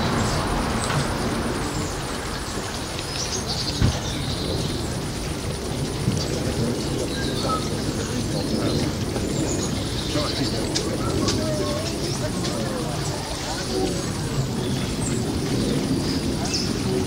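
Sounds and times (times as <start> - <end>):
steady background rush: 0.0 - 17.0.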